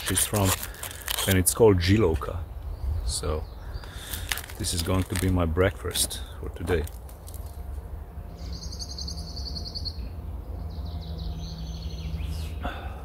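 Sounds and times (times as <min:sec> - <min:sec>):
steady low rumble: 0:00.0 - 0:13.0
songbird high trills: 0:08.3 - 0:12.7.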